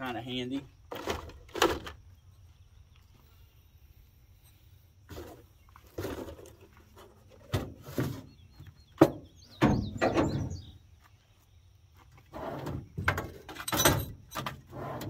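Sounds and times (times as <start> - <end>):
bird chirping: 8.0 - 13.3.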